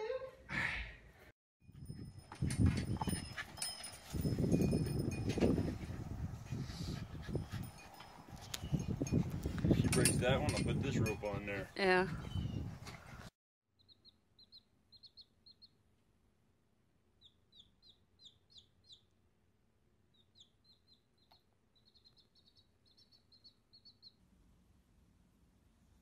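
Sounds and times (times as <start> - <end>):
chick peeping: 13.8 - 15.8, 17.2 - 19.1, 20.1 - 24.2.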